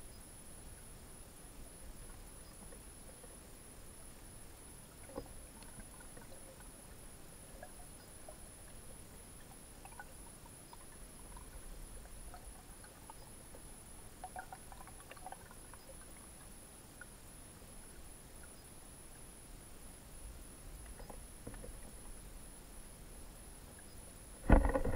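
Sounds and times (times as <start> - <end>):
small clicks and ticks: 1.6 - 4.3, 5.0 - 17.2, 20.7 - 22.2, 23.7 - 24.9.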